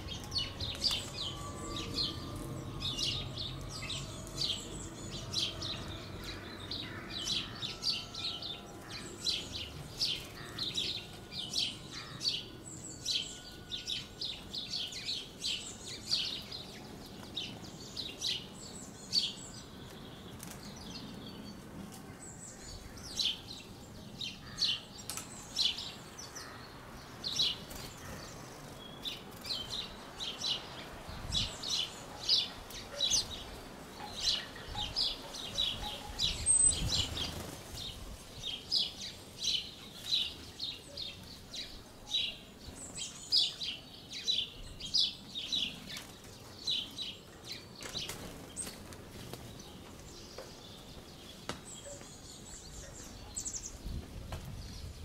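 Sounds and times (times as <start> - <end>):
songbirds chirping: 0.0 - 55.0.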